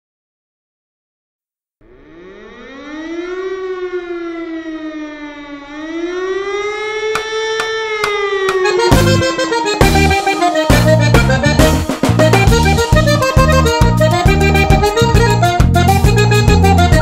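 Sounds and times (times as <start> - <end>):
siren wailing: 1.8 - 11.6
music: 8.6 - 17.0.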